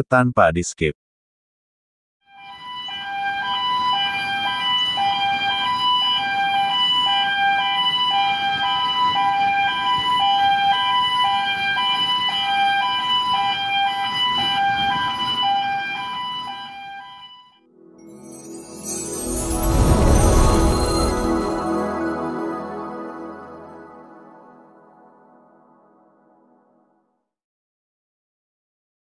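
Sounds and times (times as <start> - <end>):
two-tone warning alarm: 2.3 - 18.2.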